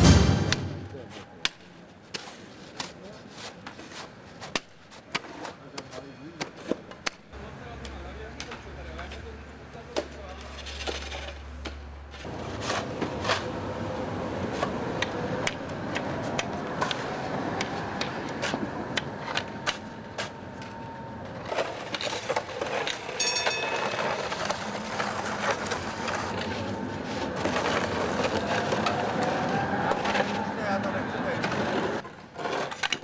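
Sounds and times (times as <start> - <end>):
city street noise: 0.0 - 33.0
shovels scraping snow and ice: 12.1 - 13.6, 21.4 - 29.4
high ringing tone: 23.0 - 24.7.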